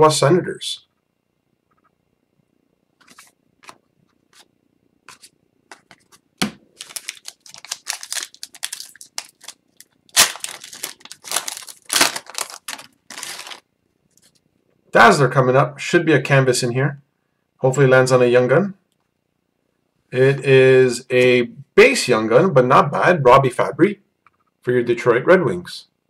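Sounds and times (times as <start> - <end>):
foil wrapper crinkling: 5.1 - 14.4
foil wrapper tearing: 6.8 - 13.6.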